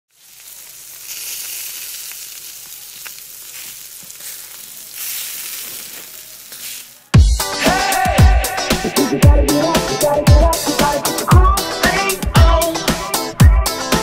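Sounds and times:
food sizzling on a grill: 0:00.1 - 0:07.2.

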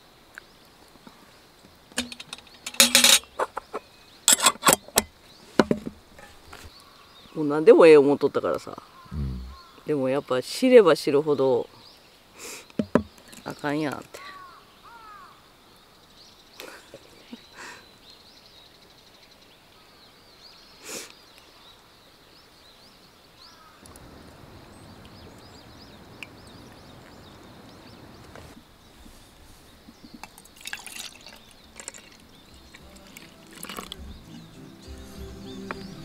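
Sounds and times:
birds chirping faintly: 0:00.0 - 0:36.0
coffee poured into metal mugs: 0:02.0 - 0:03.3, 0:30.2 - 0:34.5
liquid trickling: 0:30.2 - 0:34.5.

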